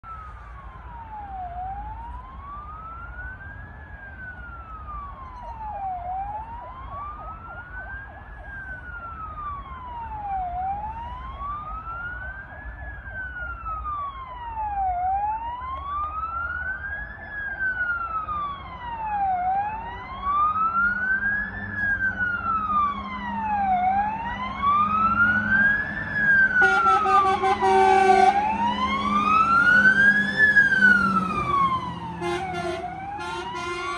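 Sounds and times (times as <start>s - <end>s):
fire engine siren wailing: 0.0s - 33.9s
truck diesel engines: 0.0s - 33.9s
horn blast: 26.6s - 28.4s, 32.2s - 33.9s.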